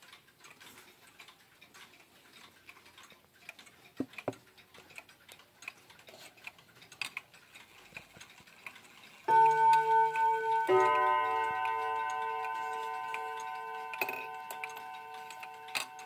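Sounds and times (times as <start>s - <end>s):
wall clock ticking: 0.0s - 16.0s.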